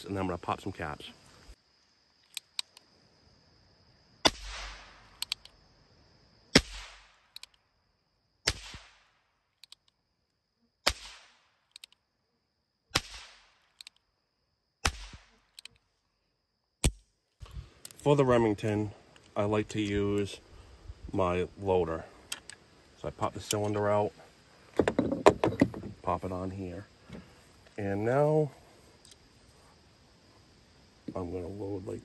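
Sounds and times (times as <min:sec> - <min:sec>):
percussion caps popping: 0:05.1 - 0:05.6, 0:07.2 - 0:07.6, 0:09.6 - 0:10.0, 0:10.9 - 0:12.0, 0:22.3 - 0:22.6.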